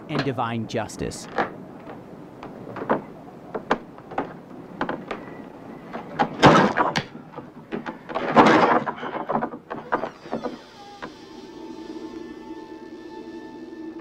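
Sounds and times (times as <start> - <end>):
clattering noises: 0.0 - 0.4, 1.2 - 11.4
knocks and clicks: 1.2 - 11.1.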